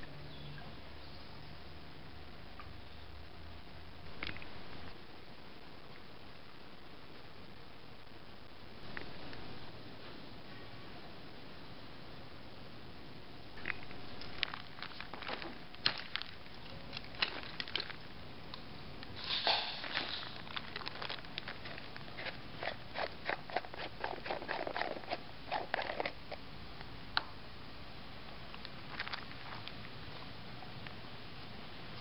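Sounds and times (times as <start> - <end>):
plastic film crinkling: 13.6 - 18.2, 19.2 - 26.3, 28.8 - 29.9.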